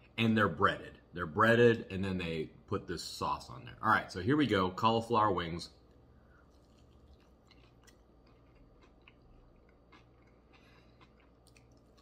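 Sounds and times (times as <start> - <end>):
chewing with soft crunches: 5.8 - 12.0.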